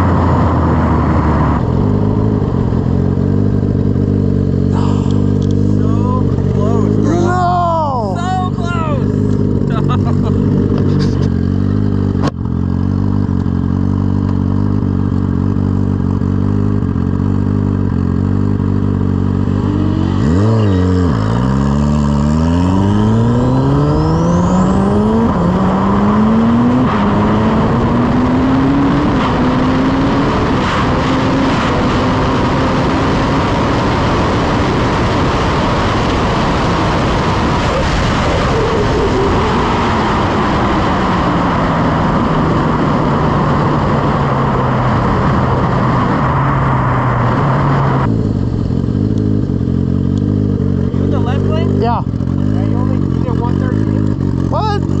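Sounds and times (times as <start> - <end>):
motorcycle engine revving and upshifting: 0.0 - 55.0
wind rush: 22.5 - 49.1.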